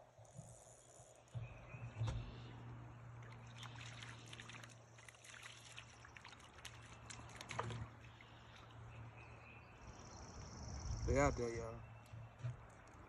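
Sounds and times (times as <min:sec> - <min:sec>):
fish splashing at water surface: 0:03.2 - 0:08.9.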